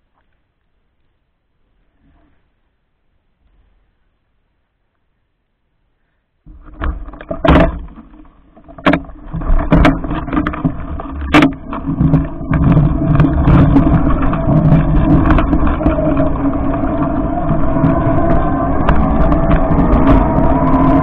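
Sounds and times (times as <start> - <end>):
electric bike running hum: 9.8 - 21.0.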